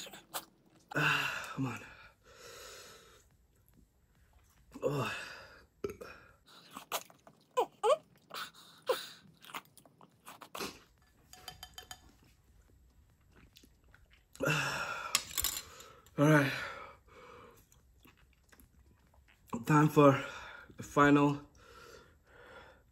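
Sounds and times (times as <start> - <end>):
person chewing: 5.8 - 11.2, 12.6 - 14.4, 17.5 - 19.6.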